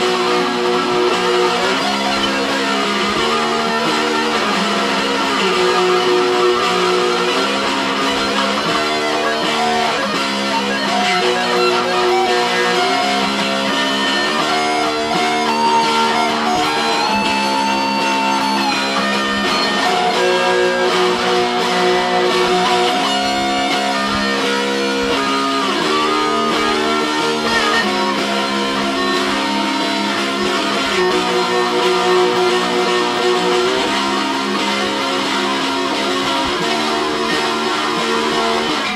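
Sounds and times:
electric guitar duet: 0.0 - 38.9.

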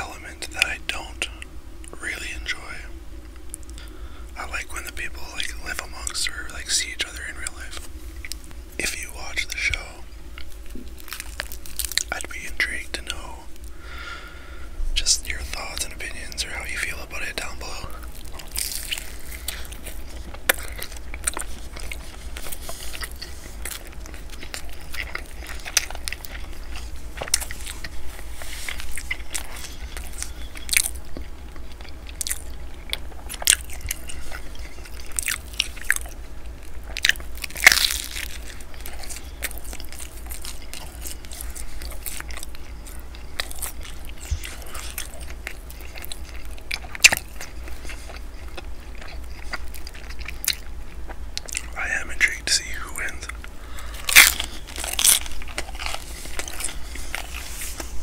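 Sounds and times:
crunchy bread chewing: 0.0 - 58.0.

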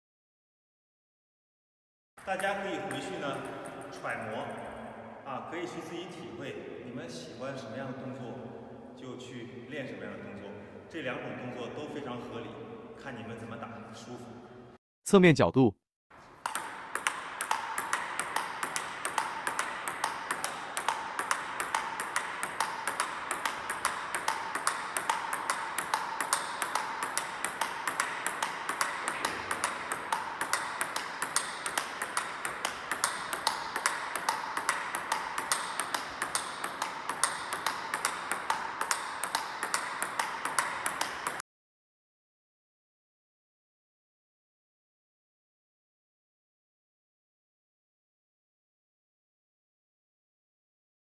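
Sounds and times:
table tennis ball clicks: 2.2 - 4.6, 16.4 - 41.4.

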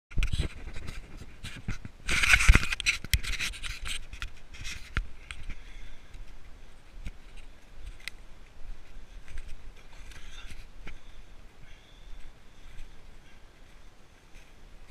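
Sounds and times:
scraping against microphone: 0.1 - 8.2, 8.8 - 11.2
rustling: 0.2 - 14.9.

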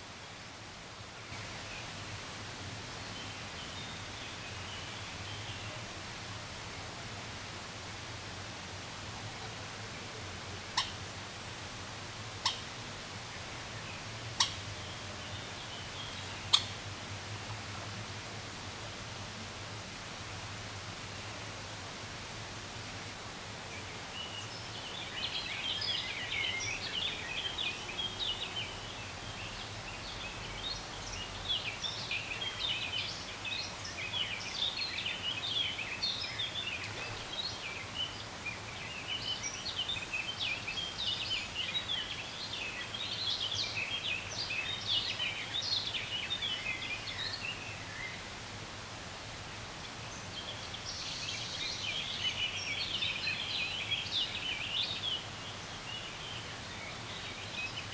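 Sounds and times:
birds chirping and twittering: 10.6 - 11.5, 12.3 - 16.9, 23.7 - 48.4, 49.8 - 57.9.

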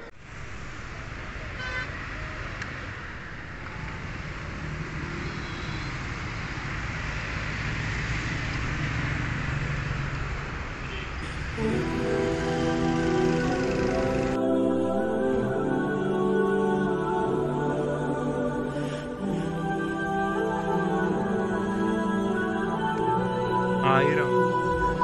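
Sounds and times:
engines of passing vehicles: 0.0 - 14.6.

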